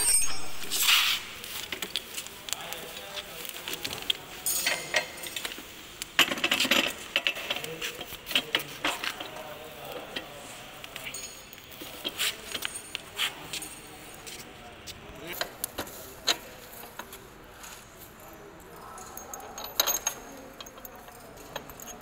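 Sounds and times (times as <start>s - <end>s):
metal parts clinking and knocking: 0.0s - 2.0s, 6.2s - 9.4s, 18.8s - 22.0s
bubble wrap crinkling: 0.4s - 4.4s.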